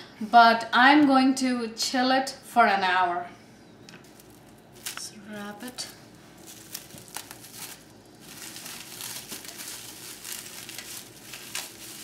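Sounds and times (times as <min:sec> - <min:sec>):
plastic cling wrap crinkling: 0:04.0 - 0:12.0.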